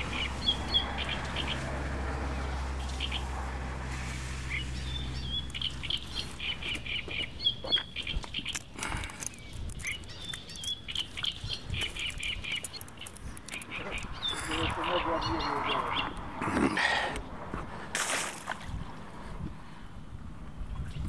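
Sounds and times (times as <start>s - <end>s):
small birds chirping: 0.0s - 3.4s, 4.0s - 17.4s.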